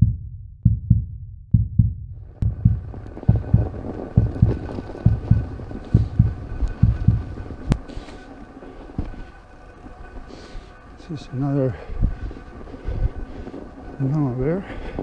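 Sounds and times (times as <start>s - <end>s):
heartbeat thumps: 0.0s - 7.8s
bike riding over snow: 2.4s - 15.0s.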